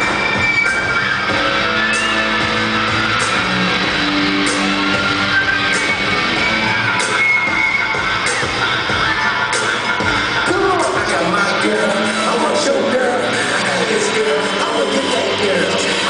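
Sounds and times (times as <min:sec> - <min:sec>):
pop music through loudspeakers: 0:00.0 - 0:16.0.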